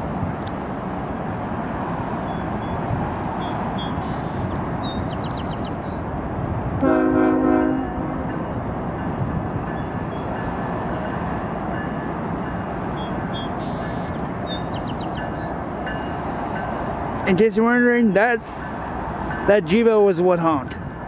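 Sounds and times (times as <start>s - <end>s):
freight train cars rumbling past: 0.0s - 21.0s
locomotive air horn blast: 6.8s - 8.4s.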